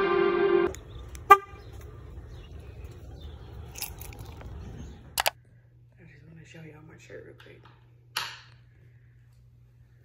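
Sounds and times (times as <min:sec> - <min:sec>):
car horn honking: 0:00.0 - 0:01.7.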